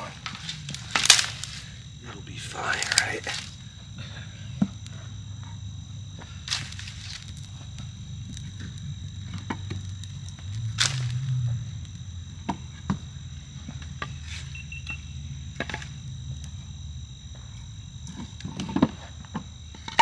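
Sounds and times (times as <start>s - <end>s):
campfire crackling and popping: 0.0s - 12.7s
high insect chorus: 0.0s - 20.0s.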